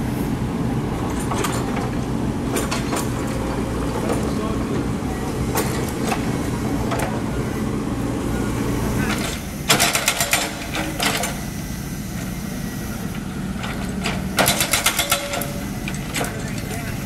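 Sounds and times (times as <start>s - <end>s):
diesel engine running: 0.0s - 17.0s
metallic clanks and rattles: 1.0s - 4.6s, 9.1s - 11.4s, 13.6s - 16.9s.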